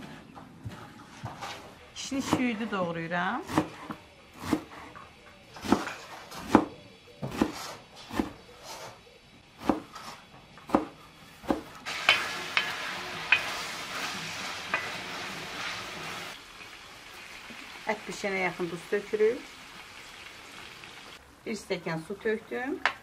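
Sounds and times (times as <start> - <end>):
knife chopping on wooden board: 3.5 - 4.8, 7.3 - 8.9, 9.6 - 11.7
meat sizzling in oil: 11.9 - 21.2.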